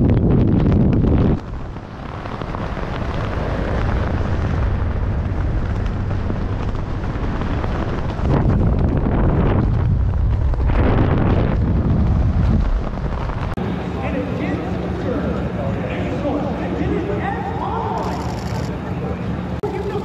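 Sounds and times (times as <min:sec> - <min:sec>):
wind buffeting helmet camera: 0:00.0 - 0:13.6.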